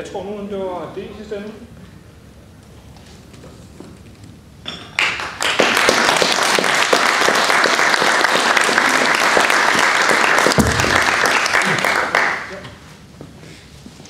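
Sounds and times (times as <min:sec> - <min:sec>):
audience applauding: 0:05.0 - 0:12.9.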